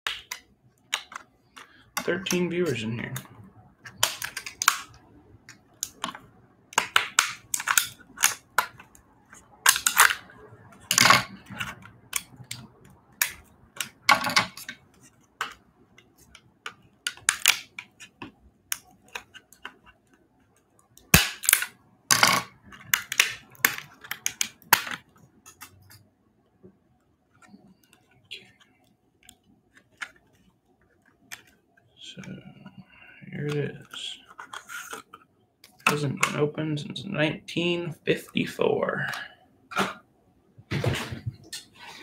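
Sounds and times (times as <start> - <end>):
scissors cracking hard plastic: 6.8 - 9.0, 9.7 - 10.2, 17.1 - 19.8, 21.0 - 21.8, 22.8 - 25.8.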